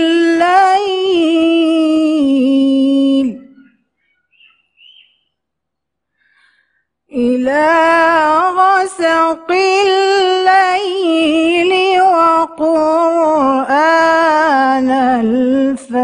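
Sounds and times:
woman chanting: 0.0 - 3.6, 7.1 - 16.0.

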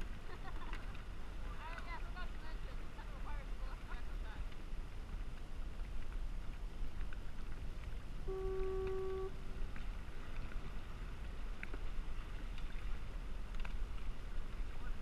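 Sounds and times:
water sounds from a kayak: 0.0 - 15.0
wind on microphone: 0.0 - 15.0
steady tone: 8.2 - 9.4.

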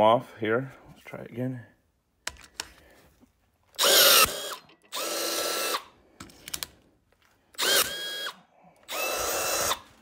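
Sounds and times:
power rivet tool motor whine: 3.8 - 5.9, 7.6 - 9.9.

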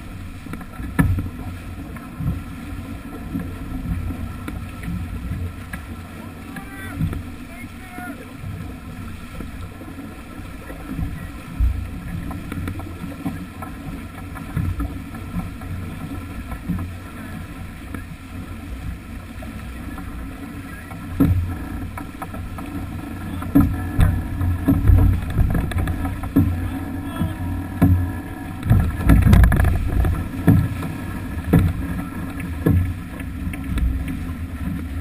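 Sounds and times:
water rushing along a hull: 0.0 - 35.0
wind buffeting the microphone: 20.0 - 35.0.

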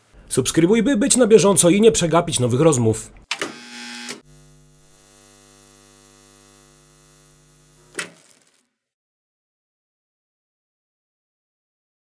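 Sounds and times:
electrical hum: 0.0 - 8.0.

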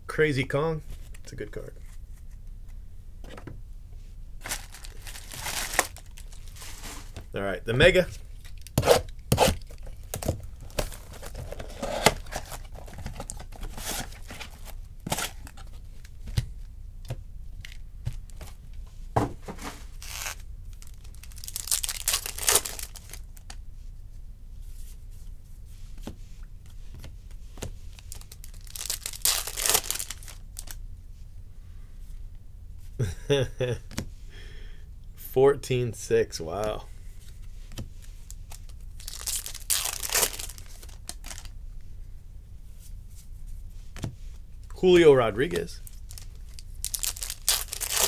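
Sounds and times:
wrappers ripping and crinkling: 4.4 - 7.1, 8.4 - 15.5, 20.0 - 23.5, 28.0 - 30.8, 38.1 - 41.5, 45.5 - 48.0
box handling clicks and rustles: 8.4 - 15.8.

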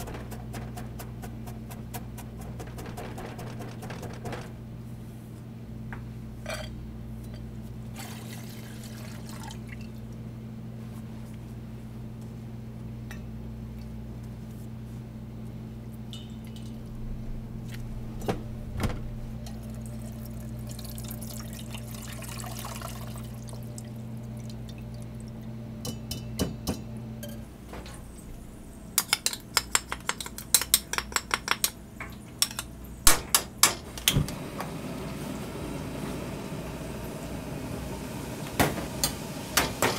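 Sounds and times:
loud sharp clicks and knocks: 0.0 - 4.6
steady low hum: 0.0 - 39.9.

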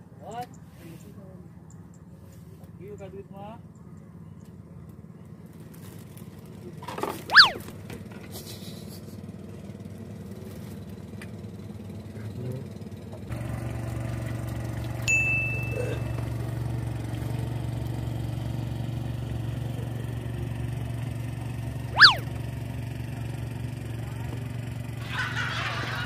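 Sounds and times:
low engine hum: 0.0 - 26.0
sharp chirp: 7.3 - 7.6, 21.9 - 22.3
high ding: 15.1 - 16.1.

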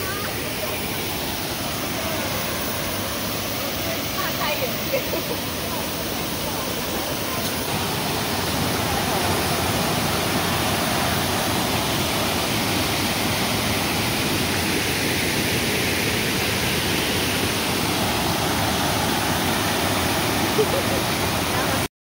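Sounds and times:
waterfall rushing over rocks: 0.0 - 21.9.

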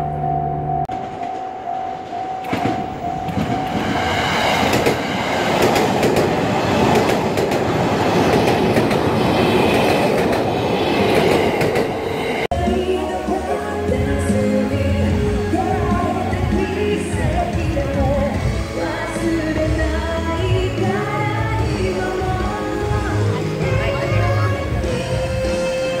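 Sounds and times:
crossing warning bell: 0.0 - 4.2
train passing: 0.9 - 26.0.

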